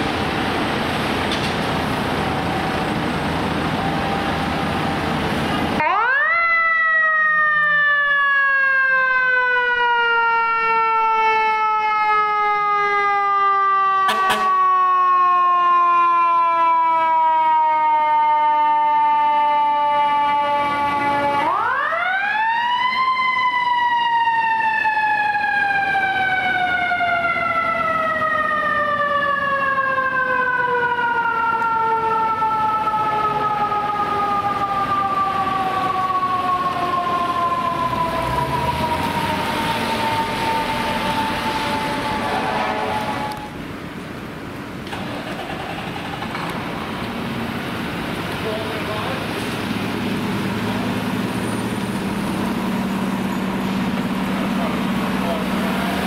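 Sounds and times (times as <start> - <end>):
heavy truck engine rumble: 0.0 - 5.9, 31.0 - 56.0.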